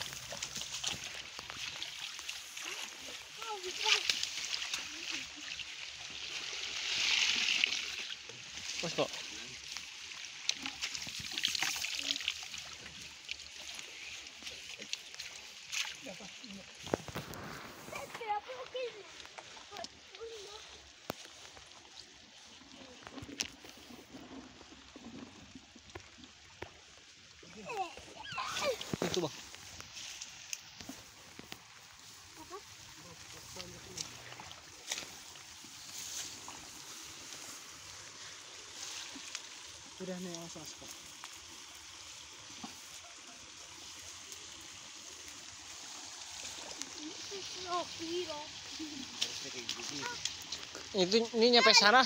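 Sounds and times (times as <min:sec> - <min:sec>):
low watery murmur: 0:00.0 - 0:52.0
soft rustling footsteps in grass: 0:12.7 - 0:25.0, 0:28.8 - 0:52.0.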